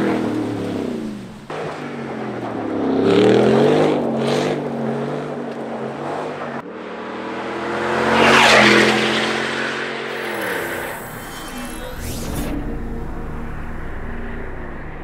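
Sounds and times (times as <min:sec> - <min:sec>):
truck driving past: 0:10.1 - 0:15.0
truck engine revving: 0:10.1 - 0:15.0.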